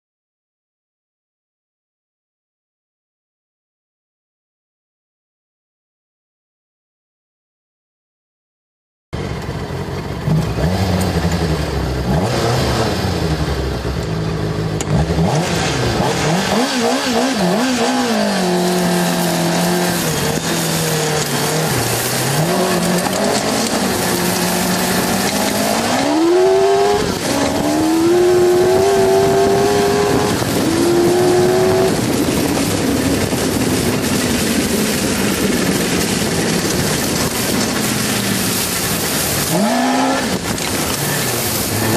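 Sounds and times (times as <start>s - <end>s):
motorcycle engine revving: 9.2s - 41.9s.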